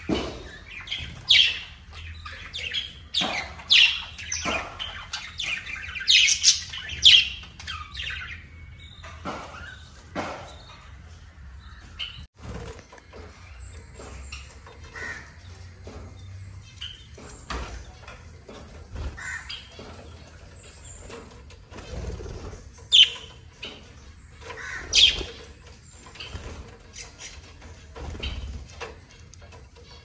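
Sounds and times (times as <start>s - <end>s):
budgerigars chirping: 0.3s - 10.0s, 13.2s - 30.0s.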